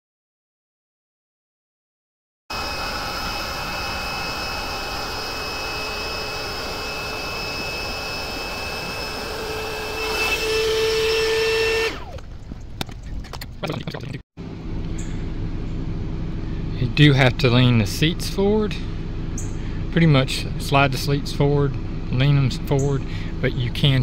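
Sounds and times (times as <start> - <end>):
electric air pump running: 2.5 - 12.2.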